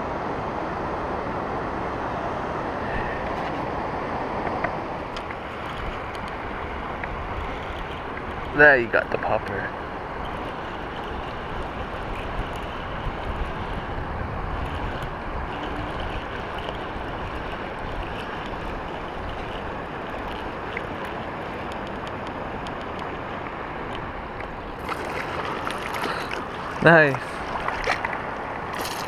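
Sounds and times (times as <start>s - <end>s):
river water flowing over rocks: 0.0s - 29.0s
wind buffeting microphone: 0.0s - 29.0s
faint clicks: 4.4s - 6.4s, 14.6s - 24.6s.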